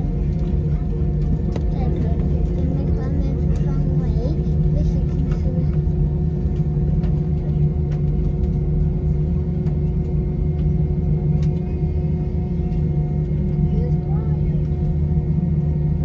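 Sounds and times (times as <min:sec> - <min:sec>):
jet engines idling: 0:00.0 - 0:16.0.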